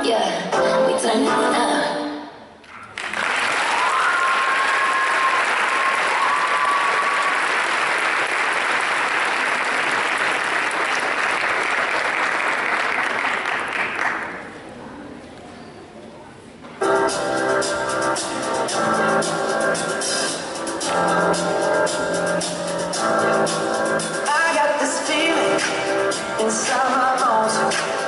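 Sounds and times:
audience applauding: 2.8 - 14.5
long high calls from crowd: 3.5 - 7.6.

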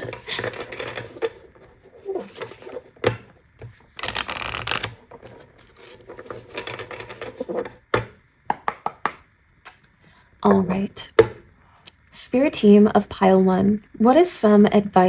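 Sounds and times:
cards being shuffled: 3.6 - 7.6.

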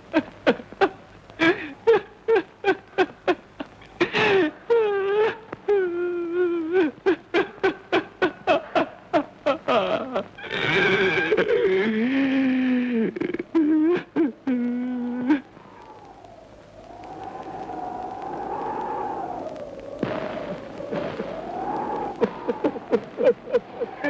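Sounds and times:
drawn-out wavering cries: 9.5 - 24.0.

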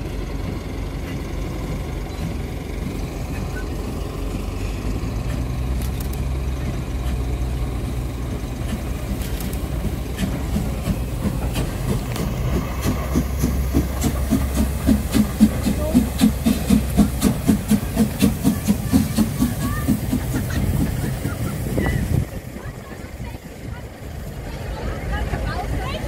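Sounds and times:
low rumble: 0.0 - 26.0
steam locomotive exhaust beats: 0.0 - 26.0
sharp clicks: 5.3 - 6.3, 9.1 - 10.6.

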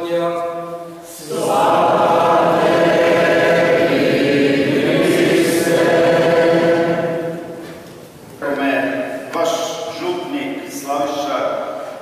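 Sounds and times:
choir and congregation singing: 1.1 - 8.2.

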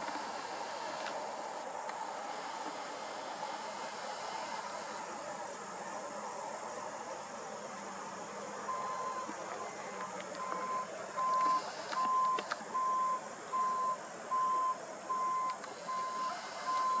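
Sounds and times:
steady background hiss: 0.0 - 17.0
reversing alarm beeping: 8.7 - 9.3, 10.4 - 17.0.

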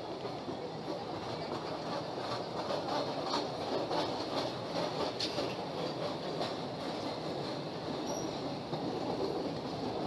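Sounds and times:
train wheels rumbling on rails: 0.0 - 10.0
high wheel squeal: 8.0 - 8.4.

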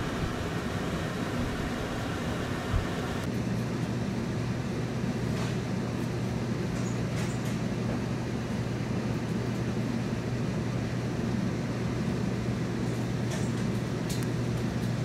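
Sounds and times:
machine hum: 0.0 - 3.3.

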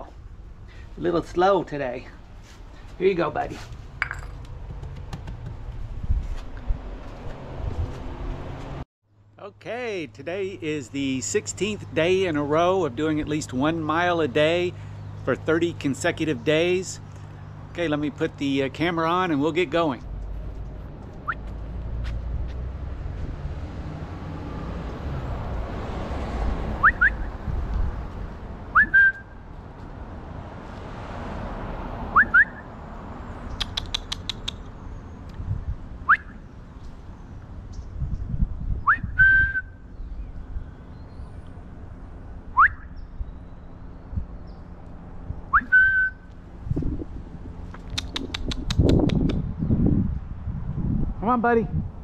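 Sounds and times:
person whistling: 26.8 - 27.3, 28.8 - 29.3, 32.2 - 32.6, 36.1 - 36.3, 38.9 - 39.8, 42.6 - 42.9, 45.5 - 46.2.

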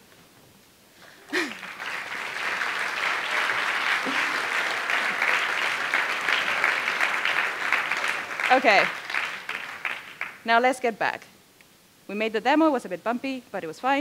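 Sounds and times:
audience applauding: 1.0 - 10.4.

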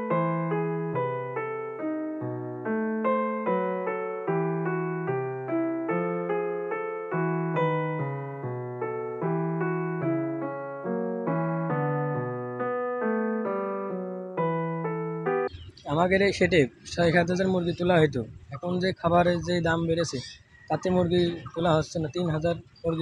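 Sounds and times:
piano music: 0.0 - 15.7.

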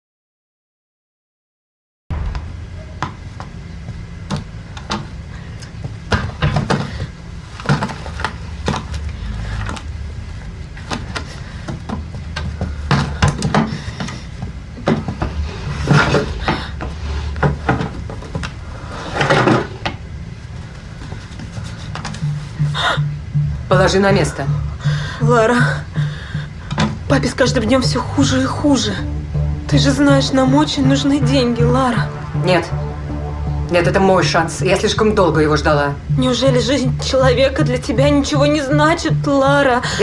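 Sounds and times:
low steady hum: 2.1 - 40.0
rummaging knocks and clatters: 6.1 - 9.0.

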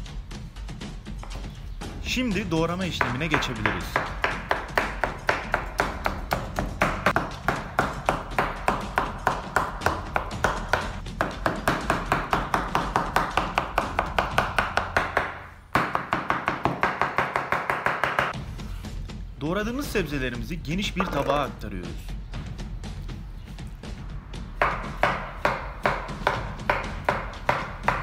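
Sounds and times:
knife chopping on wooden board: 2.9 - 18.4, 21.0 - 21.3, 24.6 - 28.0.

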